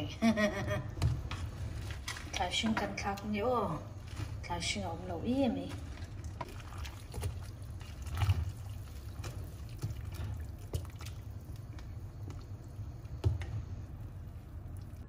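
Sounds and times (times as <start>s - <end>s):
ladle stirring broth in a pot: 4.0s - 15.0s
liquid pouring and splashing: 5.6s - 15.0s.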